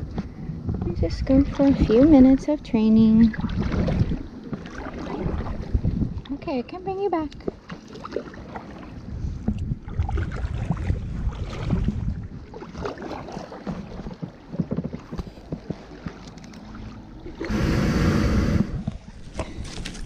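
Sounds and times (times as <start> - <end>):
water splashing against plastic hull: 0.0 - 20.0
kayak paddle strokes: 3.3 - 5.9, 7.4 - 20.0.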